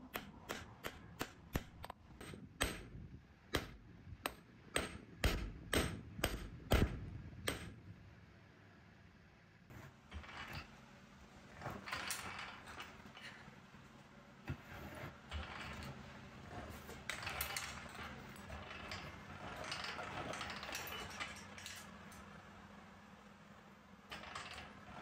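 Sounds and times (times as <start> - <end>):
rolling mill grinding: 14.4 - 22.0.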